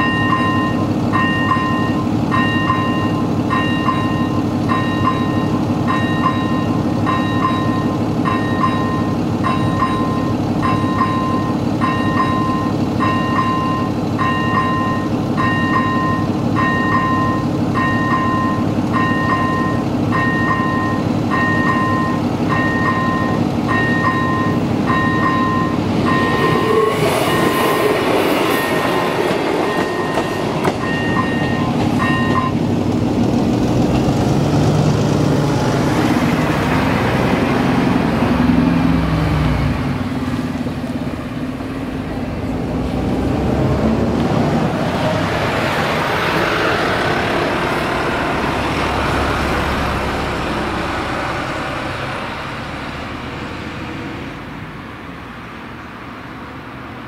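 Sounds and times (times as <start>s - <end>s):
level-crossing bell pulsing: 0.0s - 32.6s
diesel train rolling past: 0.0s - 57.0s
lorry diesel engine: 0.0s - 57.0s.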